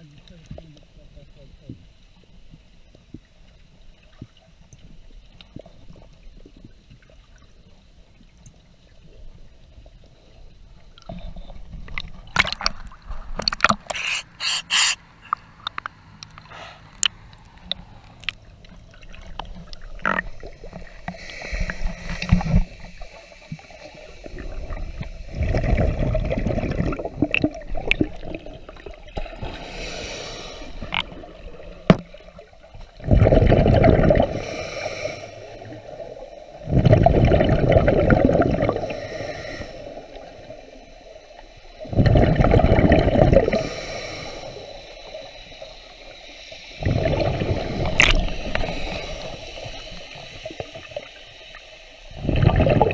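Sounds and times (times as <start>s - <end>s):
water churning: 12.1s - 23.0s, 23.8s - 34.5s, 35.7s - 40.6s, 41.8s - 43.7s, 46.7s - 51.5s, 52.1s - 52.9s
scuba bubbles gurgling: 18.5s - 52.9s.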